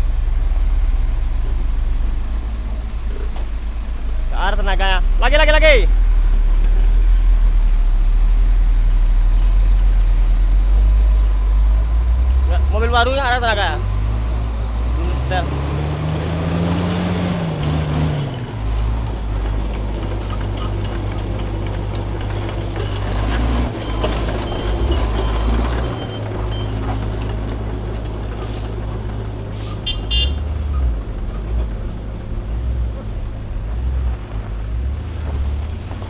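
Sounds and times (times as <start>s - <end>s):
truck diesel engine under load: 0.0s - 36.0s
truck horn toot: 29.6s - 30.5s.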